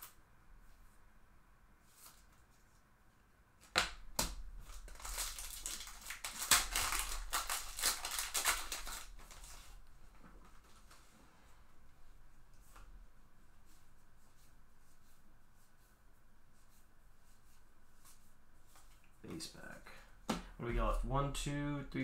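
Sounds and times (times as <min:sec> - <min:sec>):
foil wrapper tearing and crinkling: 0:04.2 - 0:09.8.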